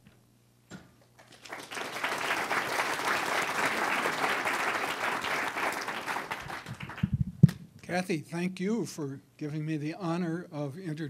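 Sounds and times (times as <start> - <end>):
audience applauding: 1.2 - 7.1.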